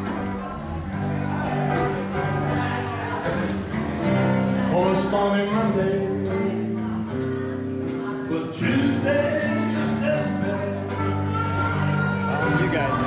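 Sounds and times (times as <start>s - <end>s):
blues guitars: 0.0s - 13.0s
person singing: 4.6s - 13.0s.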